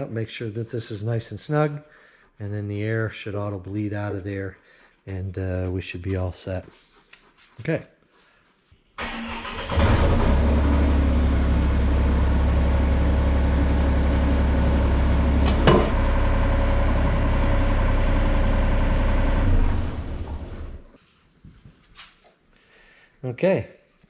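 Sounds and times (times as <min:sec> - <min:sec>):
diesel engine starting and idling: 0:09.0 - 0:20.9
sharp clunk: 0:15.4 - 0:16.0.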